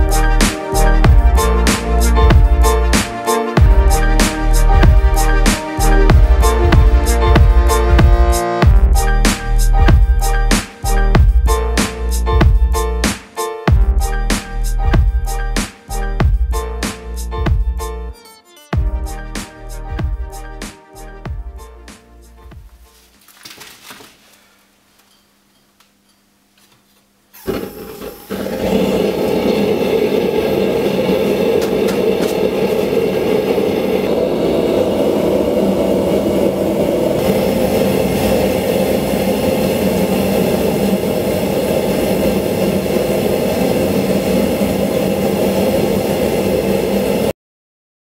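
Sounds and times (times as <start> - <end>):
gas forge burner roaring: 27.3 - 47.3.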